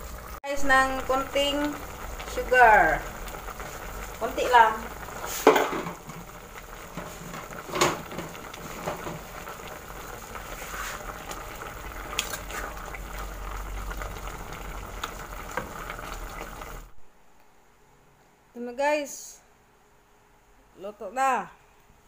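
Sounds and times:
sauce simmering in a pot: 0.0s - 17.0s.

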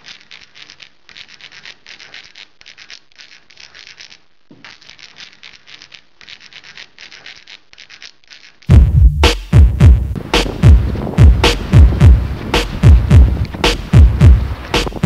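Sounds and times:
pen scratching in short strokes: 0.0s - 8.7s.

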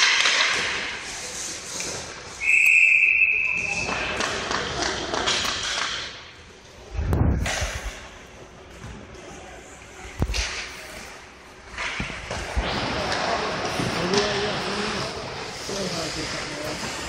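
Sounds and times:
referee's whistle blast: 2.4s - 3.9s.

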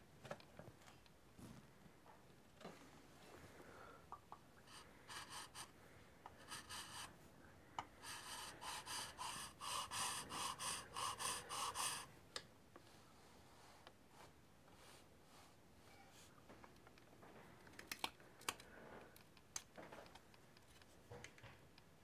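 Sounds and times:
hand file rasping on wood: 4.7s - 5.7s, 6.4s - 7.1s, 8.0s - 12.1s.

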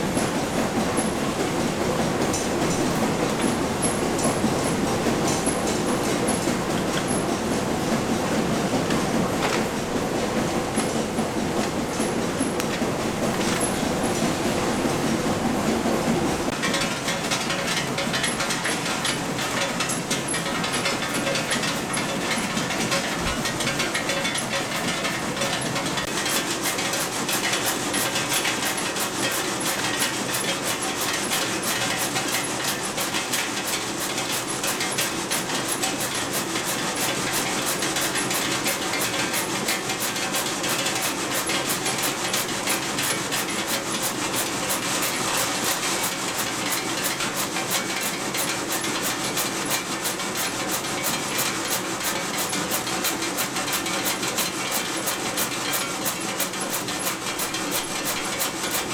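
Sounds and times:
candy machine clattering and clicking: 16.5s - 58.9s.

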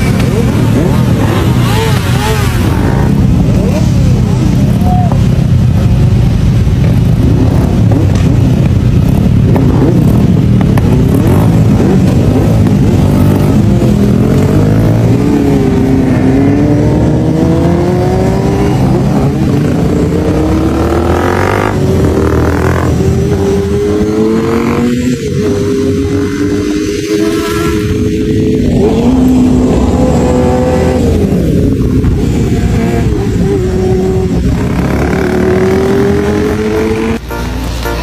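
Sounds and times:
motorcycle engines revving: 0.0s - 38.0s.

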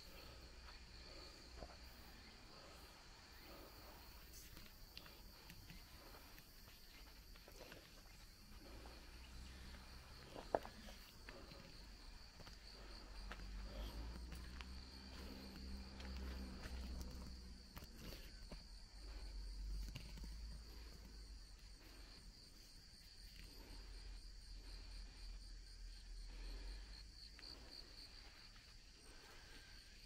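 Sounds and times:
low rumbling footsteps: 4.8s - 19.6s.

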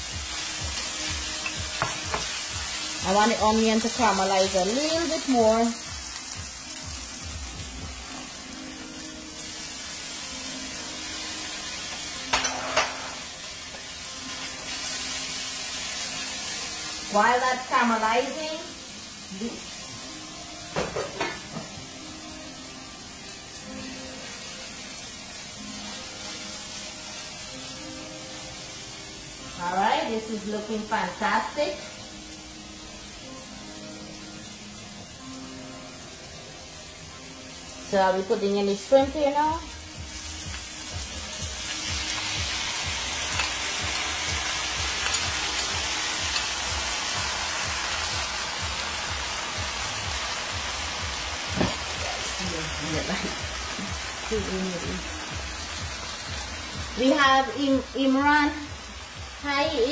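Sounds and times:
onions sizzling in frying pan: 0.0s - 59.9s
spoon knocking against pan: 1.8s - 2.3s.

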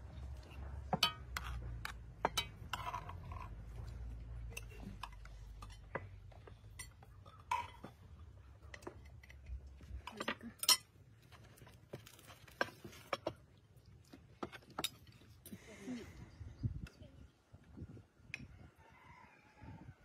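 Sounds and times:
cutlery and dishes clinking: 10.1s - 10.9s.

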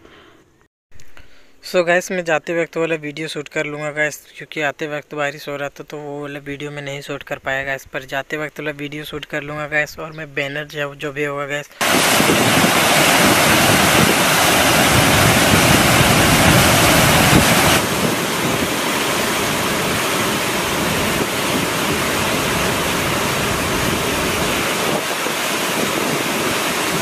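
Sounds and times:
waterfall rushing over rocks: 11.8s - 27.0s.

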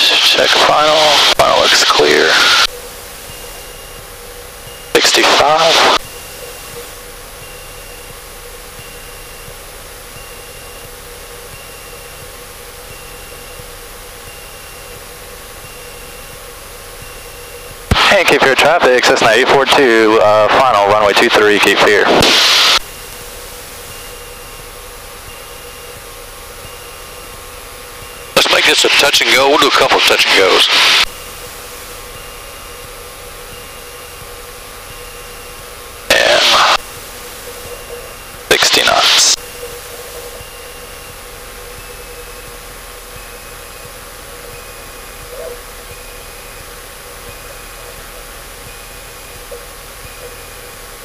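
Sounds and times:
aircraft engine hum: 0.0s - 51.0s
faint high beep: 31.0s - 51.0s.

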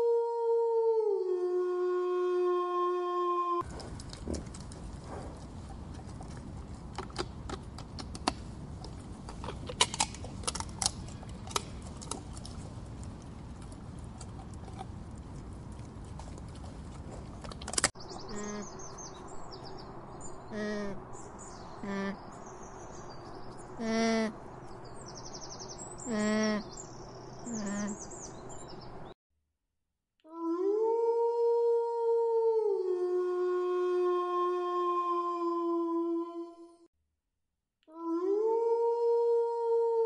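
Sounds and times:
outdoor noise: 0.0s - 29.2s
sharp clicks and snaps: 6.9s - 14.9s, 17.4s - 18.0s
birds chirping: 16.6s - 29.2s
low animal calls: 18.2s - 19.0s, 27.4s - 28.1s.

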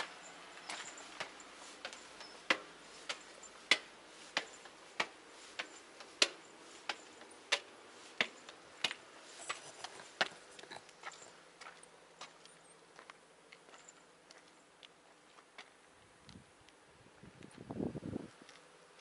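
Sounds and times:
footsteps on concrete stairs: 0.6s - 15.8s.

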